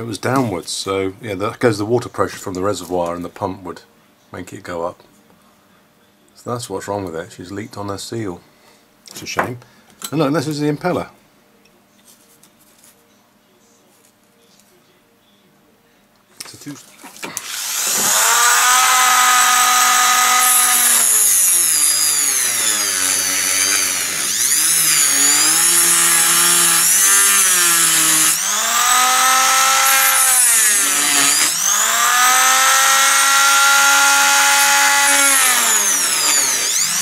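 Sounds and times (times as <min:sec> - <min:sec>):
rotary tool cutting plastic: 0:17.2 - 0:37.0.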